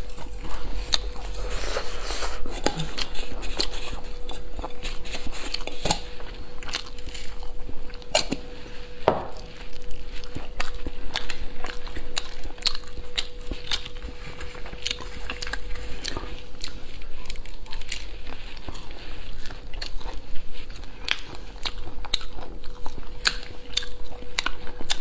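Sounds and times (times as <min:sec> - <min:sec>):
crispy fried food crunching: 0:00.0 - 0:25.0
faint steady hum: 0:00.0 - 0:25.0.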